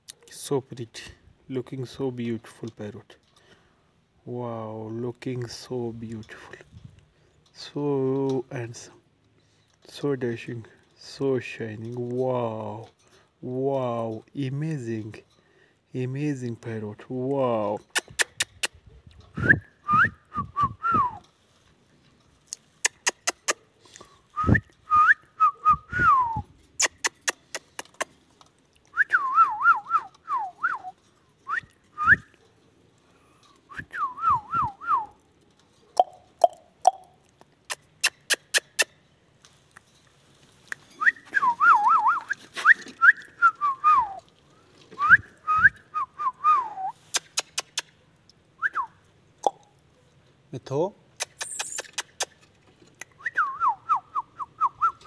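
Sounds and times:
sharp clicks: 22.5s - 23.6s, 26.8s - 28.2s, 47.1s - 48.4s, 51.2s - 53.2s.

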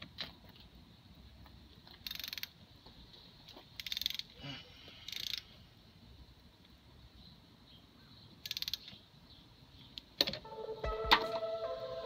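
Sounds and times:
ratchet wrench clicking: 2.0s - 2.5s, 3.8s - 4.3s, 5.1s - 5.4s, 8.4s - 8.9s.

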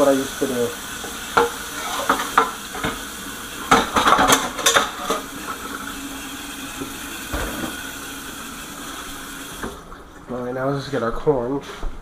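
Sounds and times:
utensil scraping frying pan: 1.0s - 3.1s, 3.7s - 5.6s.

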